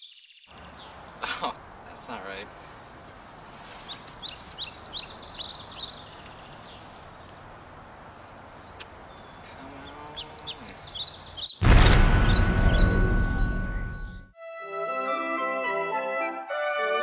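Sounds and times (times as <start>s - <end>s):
bird chirping: 0.0s - 1.2s, 3.9s - 14.2s
outdoor background hiss: 0.4s - 11.6s.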